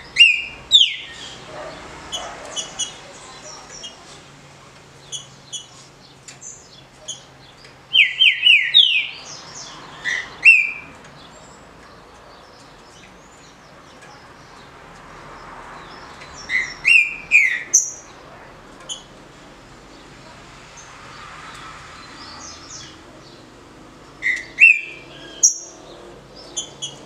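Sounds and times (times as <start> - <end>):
bird whistling song: 0.2 - 1.4, 7.9 - 9.2, 10.1 - 10.9, 16.4 - 18.0, 24.2 - 25.8.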